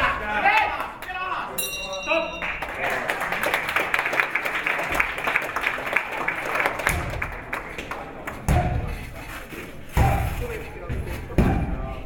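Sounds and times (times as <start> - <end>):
spectators clapping: 0.4 - 1.4, 2.4 - 8.5.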